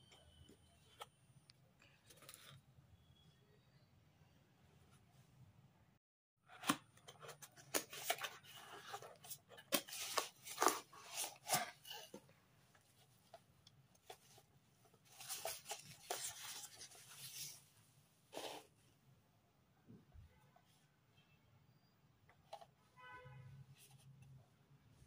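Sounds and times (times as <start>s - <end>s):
cardboard and wrap rustling: 7.2s - 12.2s, 15.0s - 17.6s.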